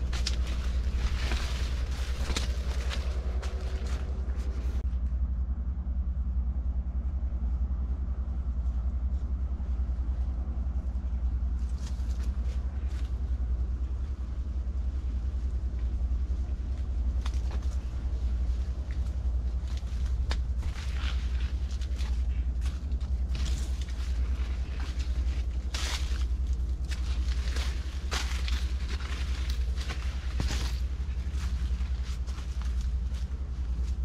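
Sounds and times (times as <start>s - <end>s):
rustling dry corn leaves: 0.0s - 4.9s, 8.4s - 34.0s
low rumble with hum: 0.0s - 34.0s.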